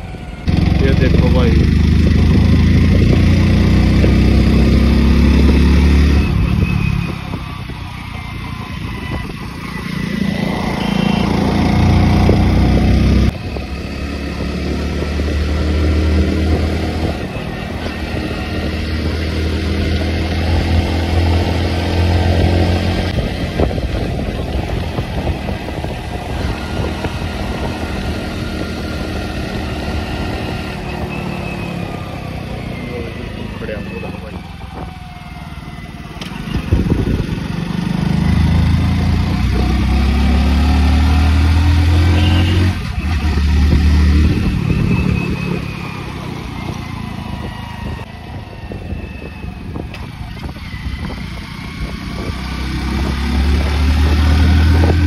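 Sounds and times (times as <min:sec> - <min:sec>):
motorcycle engine running: 0:00.3 - 0:35.4.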